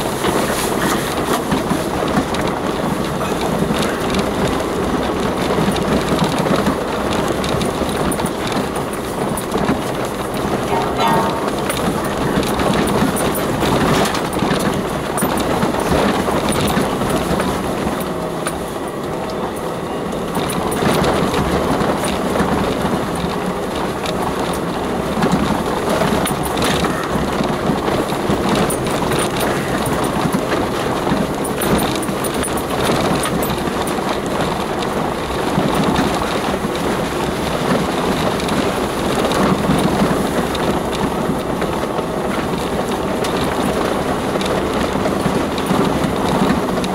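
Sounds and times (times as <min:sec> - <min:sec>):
tyre noise on rough track: 0:00.0 - 0:46.9
vehicle body knocks and rattles: 0:00.0 - 0:46.9
vehicle engine running: 0:00.0 - 0:46.9.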